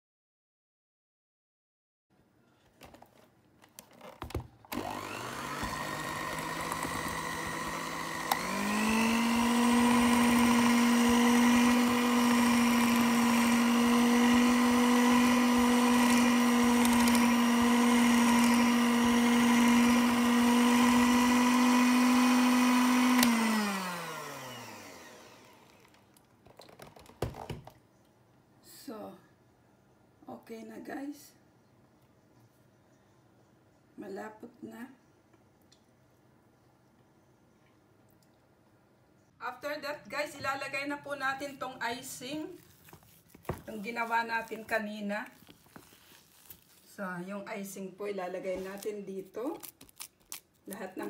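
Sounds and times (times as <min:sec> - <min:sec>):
electric mixer whining: 0:04.7 - 0:26.0.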